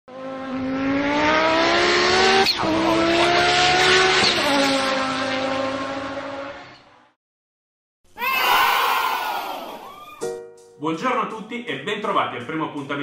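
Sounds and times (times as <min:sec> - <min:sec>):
car engine revving: 0:00.1 - 0:07.1.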